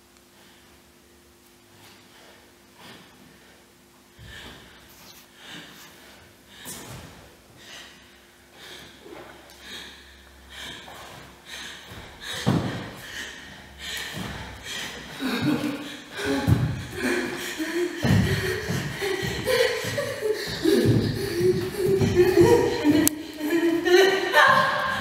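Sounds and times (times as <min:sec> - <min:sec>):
person breathing hard: 0:01.7 - 0:25.0.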